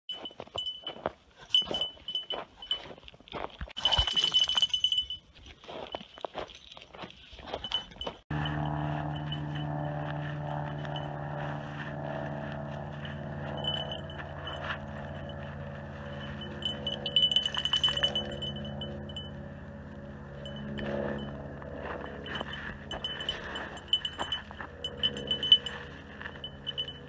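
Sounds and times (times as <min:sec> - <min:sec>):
chime-like tones: 0:00.1 - 0:03.0, 0:03.8 - 0:06.0, 0:07.6 - 0:11.4, 0:12.9 - 0:27.0
low drone: 0:08.3 - 0:27.0.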